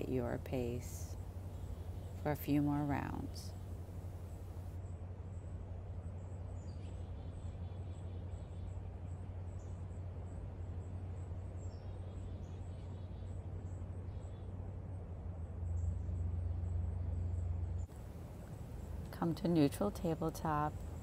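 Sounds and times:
steady low rumble: 0:13.0 - 0:21.0.

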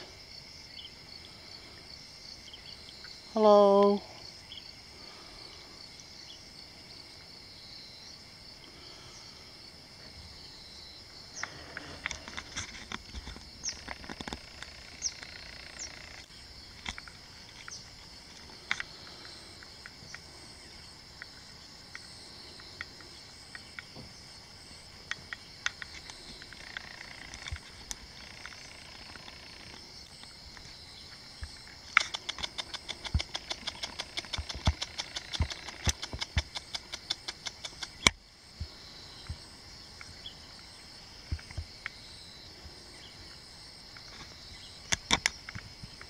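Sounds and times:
insect chorus trilling: 0:00.0 - 0:46.0
clicks and rustles: 0:11.4 - 0:15.4, 0:25.0 - 0:30.7, 0:31.5 - 0:38.2.

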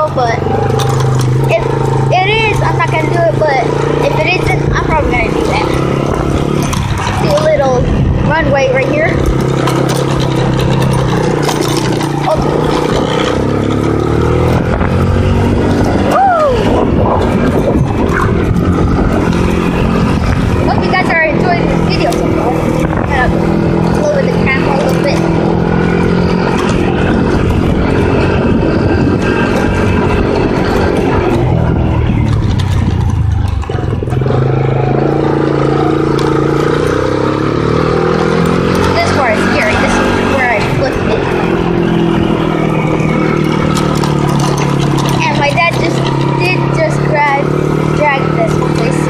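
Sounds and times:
atv engine running: 0:00.0 - 0:49.0
clicks and rattles: 0:00.5 - 0:03.2, 0:05.4 - 0:07.7, 0:09.1 - 0:15.0, 0:32.2 - 0:34.4, 0:43.3 - 0:46.6.

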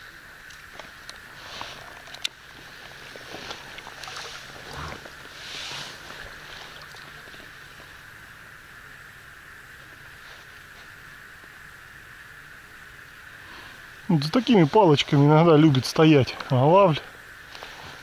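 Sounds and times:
water lapping against raft: 0:00.9 - 0:08.0
soft splashes: 0:01.7 - 0:07.9.

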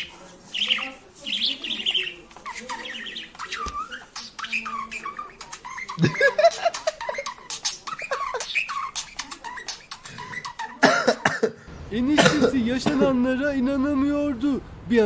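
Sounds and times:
songbirds chirping: 0:00.0 - 0:10.9.

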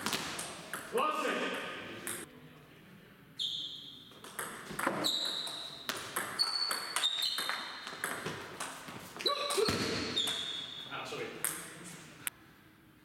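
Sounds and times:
table tennis ball hits: 0:04.2 - 0:10.5.

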